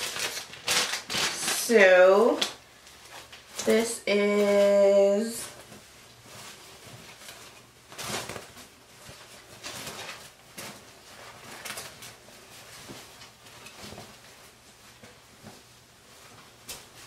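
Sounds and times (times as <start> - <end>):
rustling of fabric and packaging: 0.0 - 17.0.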